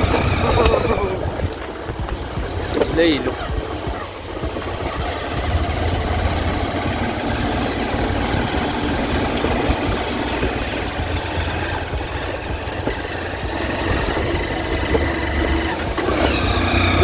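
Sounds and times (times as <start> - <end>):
road noise on dirt road: 0.0 - 17.0
vehicle engine running: 0.0 - 17.0.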